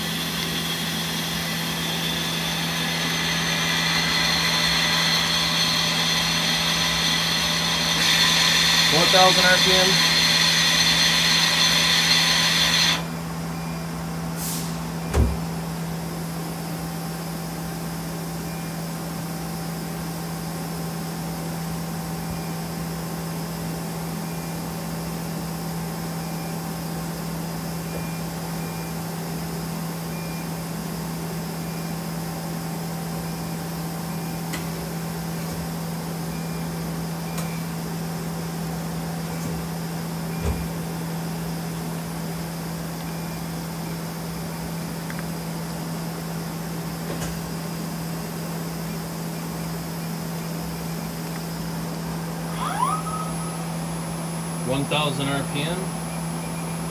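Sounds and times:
loud hiss: 0.0s - 13.1s, 14.4s - 14.9s
steady machine hum: 0.0s - 56.9s.

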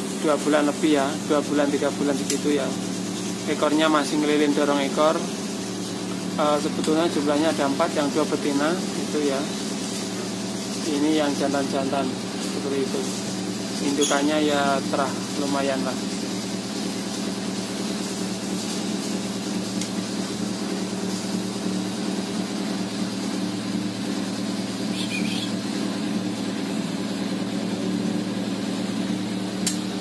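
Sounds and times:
low mechanical hum: 0.0s - 30.0s
sharp click: 29.6s - 29.9s.

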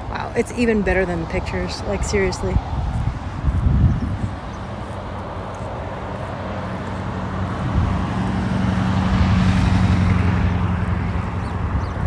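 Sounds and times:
pickup truck driving past: 4.8s - 12.0s.

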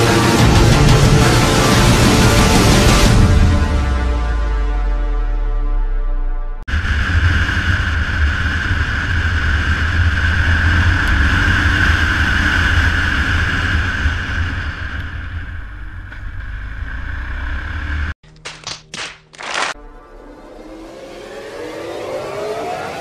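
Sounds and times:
motorcycle engine drone: 6.6s - 18.2s, 19.7s - 23.0s
wind rush on microphone: 6.7s - 15.8s.

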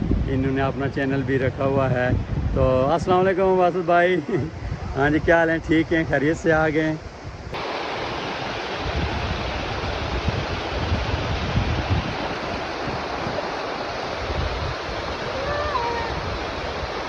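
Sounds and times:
stream rushing over rocks: 7.5s - 17.0s.

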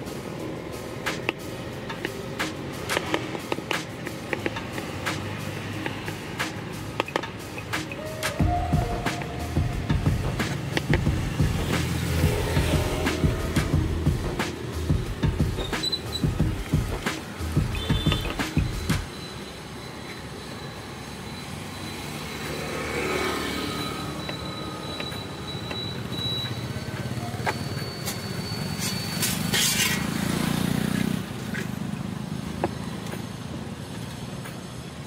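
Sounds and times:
roadside traffic: 0.0s - 35.0s.

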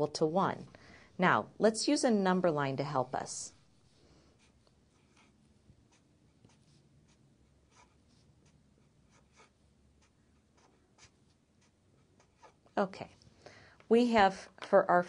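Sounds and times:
marker scratching on paper: 2.8s - 13.2s.

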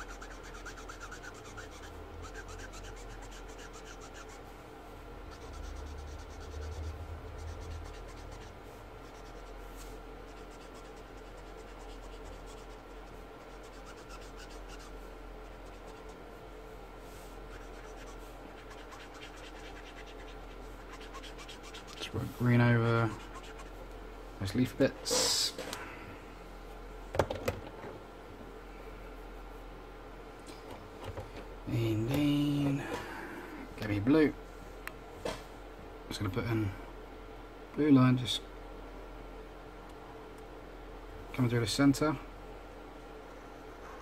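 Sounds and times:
marker scratching on paper: 0.0s - 4.5s, 5.3s - 16.2s, 17.5s - 22.1s, 23.0s - 23.8s.

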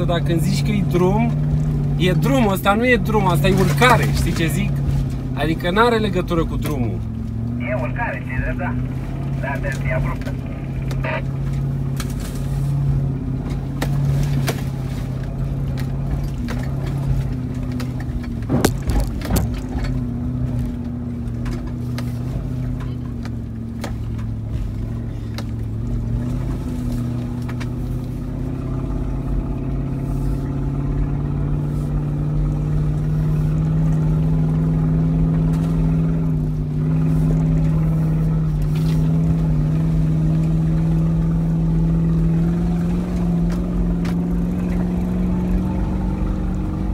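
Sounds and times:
truck engine pulling uphill: 0.0s - 46.9s
knocks and rattles over bumps: 13.2s - 29.2s.

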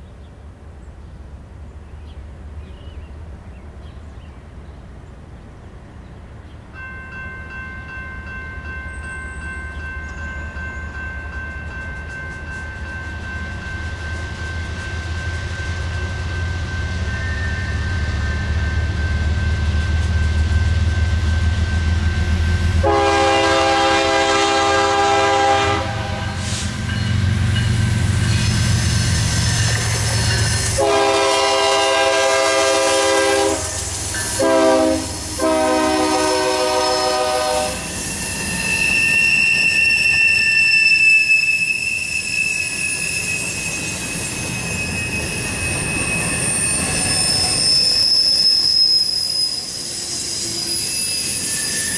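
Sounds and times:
diesel locomotive rumble: 9.7s - 40.4s
train air horn blasts: 22.7s - 27.0s, 28.4s - 37.9s.

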